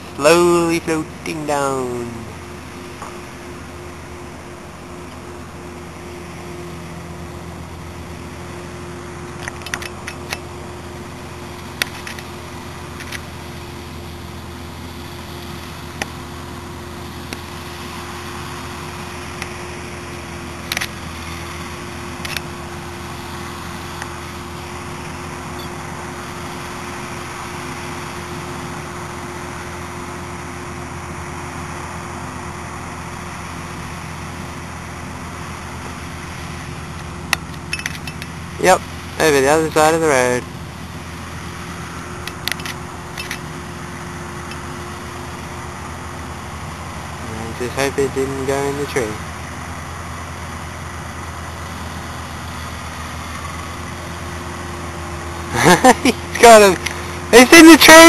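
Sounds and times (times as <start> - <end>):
camera handling clicks: 9.4 - 10.4, 20.7 - 20.9, 22.2 - 22.5, 42.3 - 43.5.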